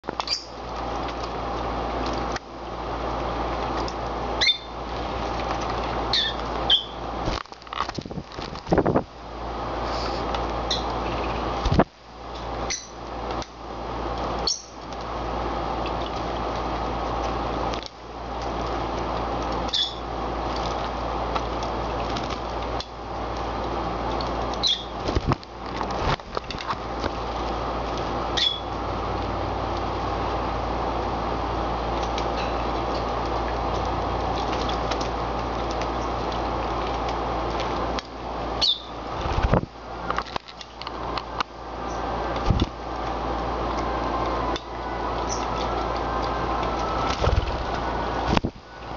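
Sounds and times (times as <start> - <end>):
steady background hum: 0.0 - 48.9.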